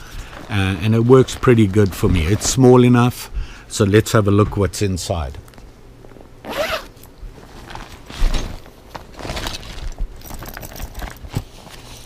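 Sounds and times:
plastic bag rustling: 0.0s - 3.2s, 5.5s - 12.0s
zipper pulled open: 6.1s - 8.6s.

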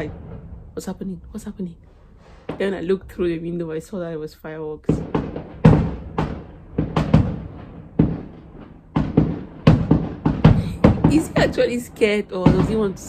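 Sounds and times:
fireworks bangs with echo: 0.0s - 0.9s, 4.9s - 13.0s.

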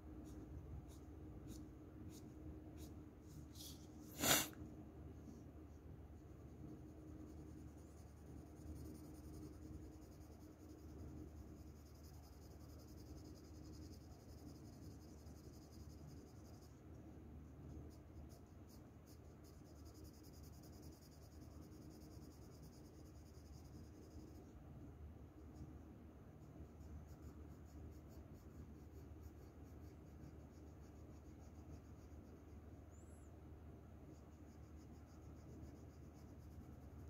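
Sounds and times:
pencil scratching on paper: 0.2s - 4.5s, 6.2s - 16.8s, 26.4s - 32.6s, 34.1s - 37.0s.

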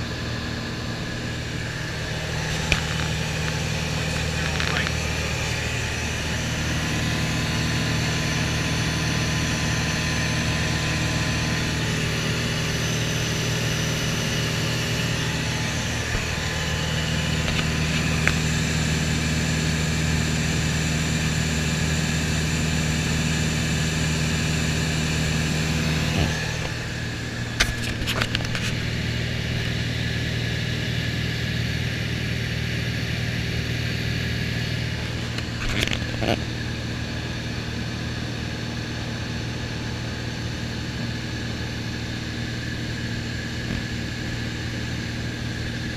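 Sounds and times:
propeller plane engine droning: 0.0s - 45.9s.

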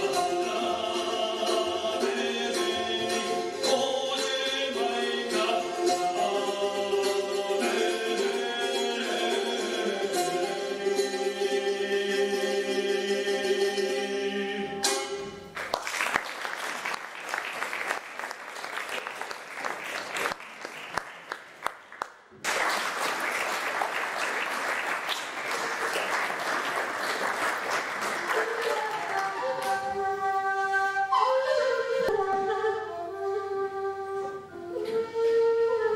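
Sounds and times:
live folk music: 0.0s - 21.9s, 23.0s - 35.9s
audience applauding: 15.6s - 29.8s.

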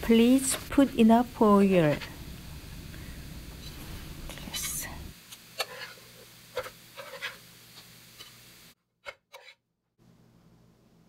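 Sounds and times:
metal spatula scraping frying pan: 5.6s - 7.4s.

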